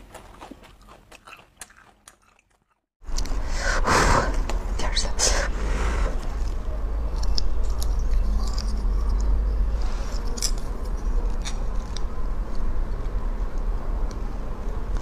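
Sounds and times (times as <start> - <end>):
steady low hum: 3.0 - 15.0.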